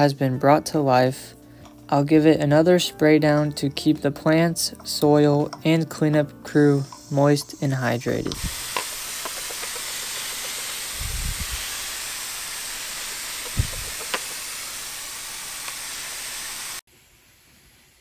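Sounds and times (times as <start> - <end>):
pump mister spraying water: 8.1 - 16.8.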